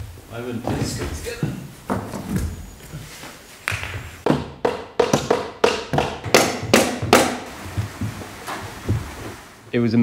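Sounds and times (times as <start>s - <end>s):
hammer knocking wood: 4.2s - 9.2s.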